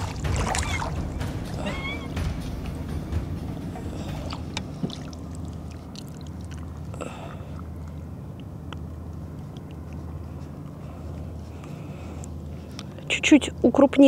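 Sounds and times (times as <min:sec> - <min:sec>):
water splashing and dripping: 0:00.0 - 0:08.9
low rumble: 0:00.0 - 0:13.1.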